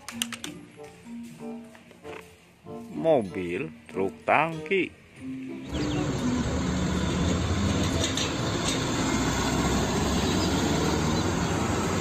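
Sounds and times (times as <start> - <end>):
road and traffic noise: 4.5 - 12.0
truck engine driving past: 5.6 - 12.0.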